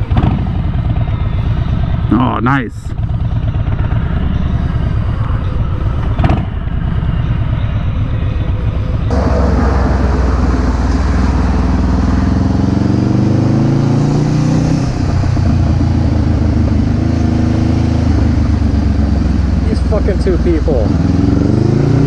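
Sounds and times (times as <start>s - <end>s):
motorcycle engine accelerating: 3.0s - 22.0s
wind rushing past: 9.1s - 16.3s.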